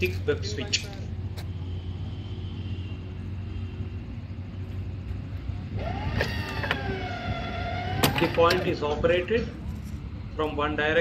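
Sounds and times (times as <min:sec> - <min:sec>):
point machine motor whine: 0:05.4 - 0:08.8.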